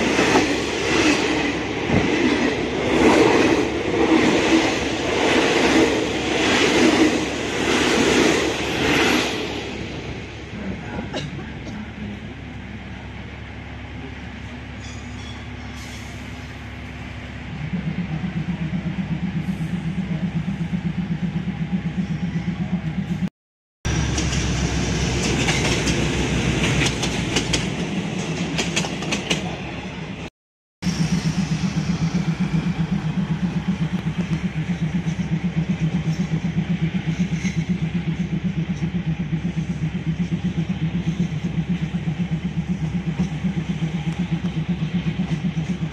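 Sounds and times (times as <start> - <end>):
train wheels rumbling on rails: 0.0 - 23.3, 23.9 - 45.9
fast-pulsing low hum: 17.3 - 23.3, 30.8 - 45.9.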